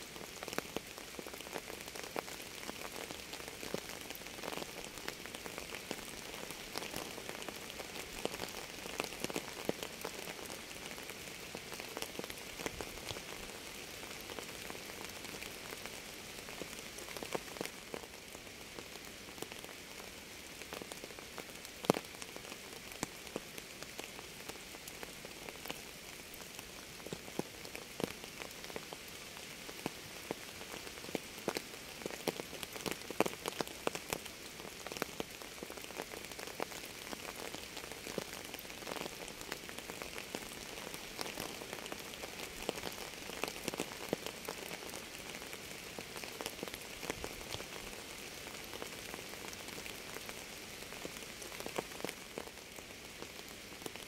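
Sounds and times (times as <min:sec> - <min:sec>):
rain falling on a surface: 0:00.0 - 0:54.0
raindrops ticking: 0:31.0 - 0:47.9.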